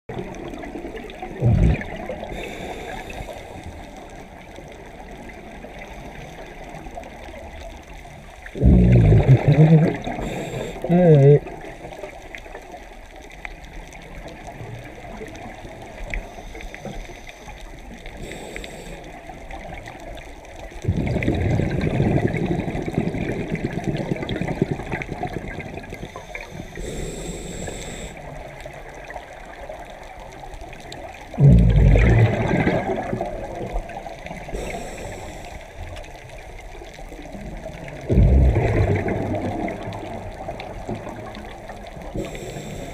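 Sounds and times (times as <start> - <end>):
scuba regulator bubbles rushing: 0.1 - 7.6, 8.3 - 12.0, 20.6 - 30.2, 30.9 - 42.9
low watery hiss: 0.1 - 42.9.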